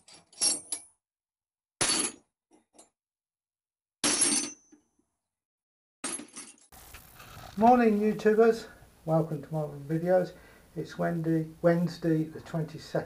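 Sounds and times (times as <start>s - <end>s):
metal tools clattering and clinking: 0.0s - 0.9s.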